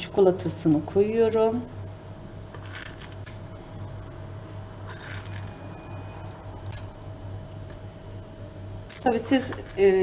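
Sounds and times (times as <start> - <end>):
low hum: 1.6 - 9.0.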